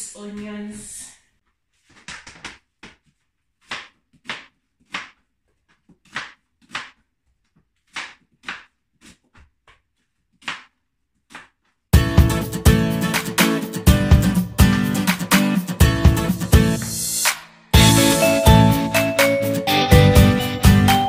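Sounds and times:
knife slicing onion on board: 3.6 - 7.0, 7.8 - 11.6
acoustic guitar music: 12.0 - 17.0, 17.8 - 21.0.

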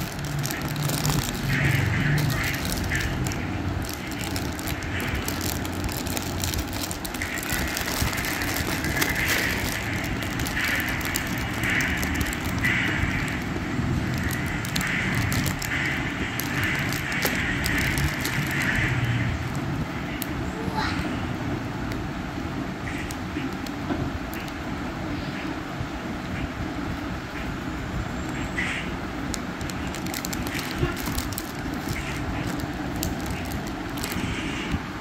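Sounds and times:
plastic wrapping crinkling: 0.0 - 20.3, 29.2 - 34.3
steady background noise: 0.0 - 35.0.

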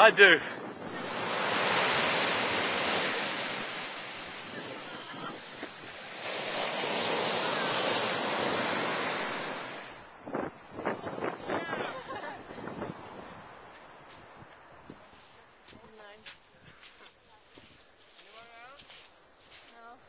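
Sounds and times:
ocean surf breaking: 0.0 - 10.2.

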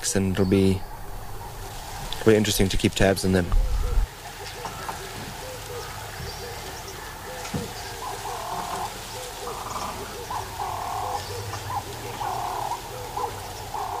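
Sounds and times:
longer higher animal calls: 3.5 - 14.0.

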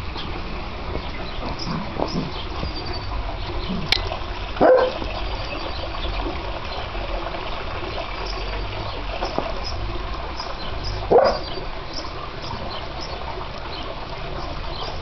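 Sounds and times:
puppy barking: 4.6 - 5.0, 11.1 - 11.5.

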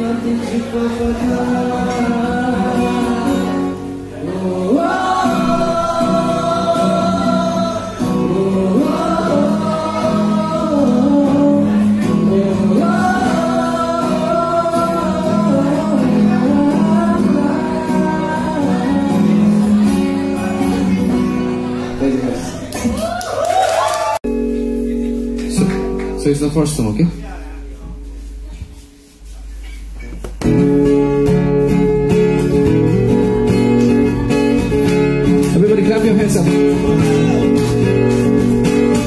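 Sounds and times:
man singing: 0.0 - 22.7
acoustic guitar: 0.0 - 39.0.

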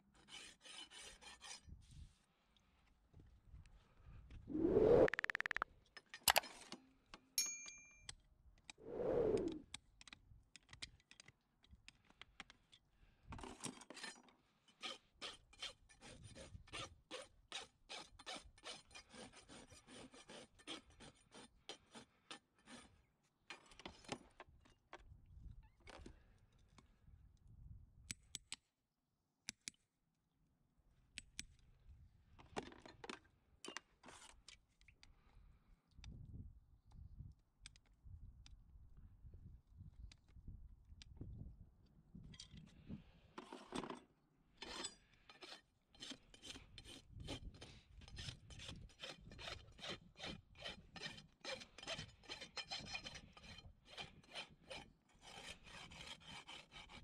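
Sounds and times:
rasp scraping hoof: 44.6 - 57.0.

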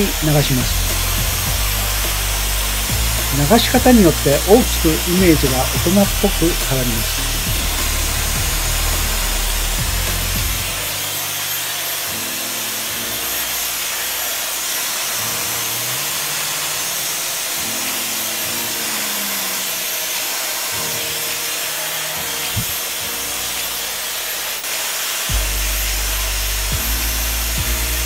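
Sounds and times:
hair dryer blowing: 0.0 - 28.0.

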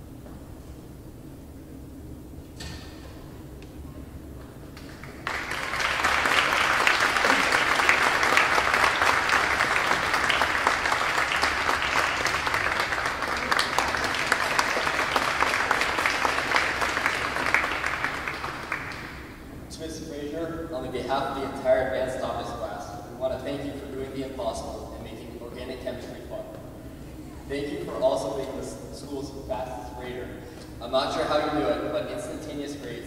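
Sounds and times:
audience applauding: 4.8 - 19.4.

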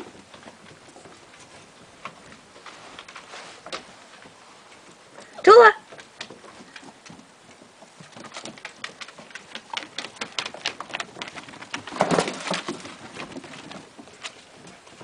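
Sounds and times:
dogs scuffling: 0.0 - 5.1, 5.8 - 15.0
dog claws clicking on wood: 8.0 - 14.4.

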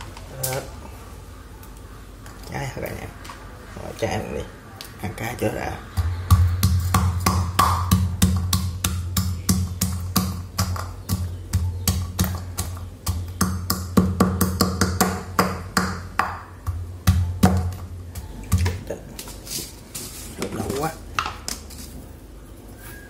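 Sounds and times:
pestle pounding in metal bowl: 6.0 - 18.7.

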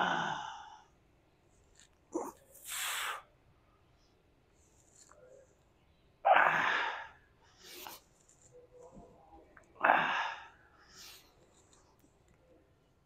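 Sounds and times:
man's forceful breath bursts: 2.6 - 3.2.

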